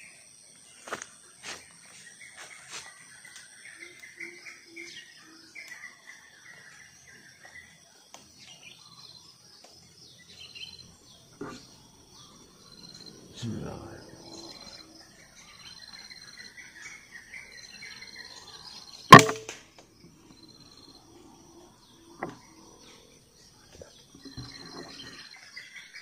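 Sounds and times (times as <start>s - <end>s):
insects chirping: 0.0s - 26.0s
birds chirping: 1.6s - 26.0s
air rifle shot: 19.1s - 19.6s.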